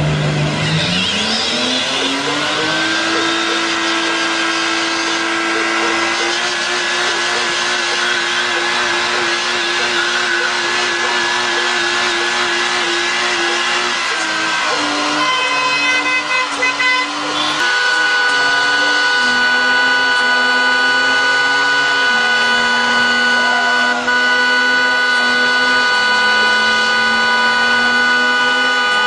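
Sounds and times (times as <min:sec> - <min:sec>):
car engine revving: 0:00.0 - 0:29.0
tyres squealing: 0:00.6 - 0:28.7.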